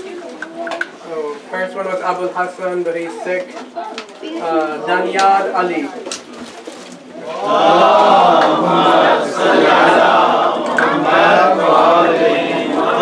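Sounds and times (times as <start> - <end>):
group of voices chanting: 7.2 - 13.0.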